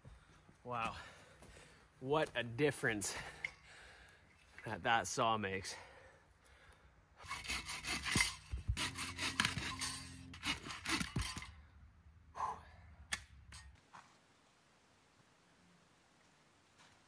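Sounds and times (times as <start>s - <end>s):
bow saw cutting log: 7.2s - 11.4s.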